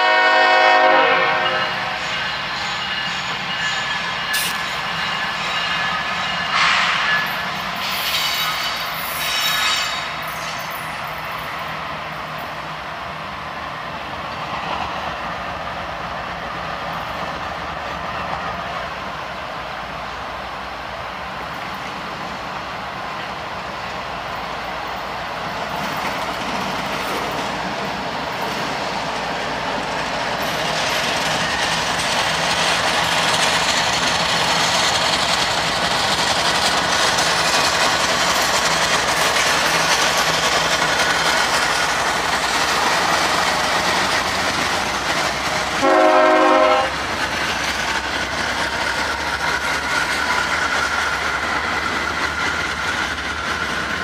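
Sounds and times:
train horn blast: 0:00.0 - 0:02.0, 0:45.7 - 0:47.0
diesel locomotives rumbling: 0:00.0 - 0:54.0
train wheels clickety-clack: 0:00.0 - 0:54.0.

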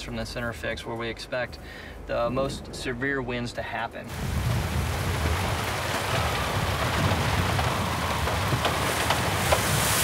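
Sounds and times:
low wind rumble: 0:00.0 - 0:10.0
rain hissing: 0:04.1 - 0:10.0.

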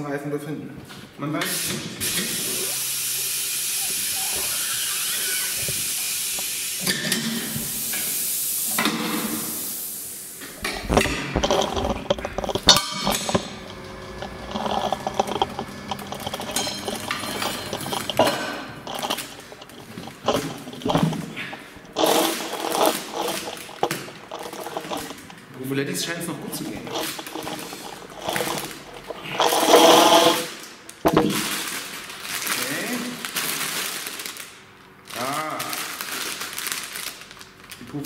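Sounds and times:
compressed air hissing: 0:01.5 - 0:13.5.

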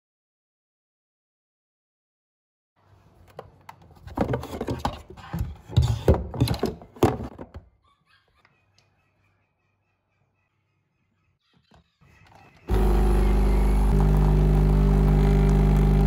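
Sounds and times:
knocks and rustling: 0:03.2 - 0:07.7.

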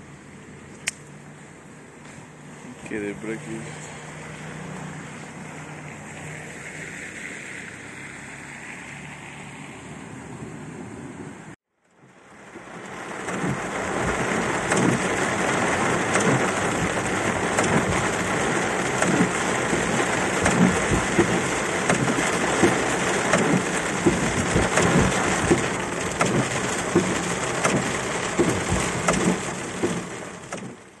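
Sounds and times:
hail and rain on car roof: 0:12.0 - 0:31.0.

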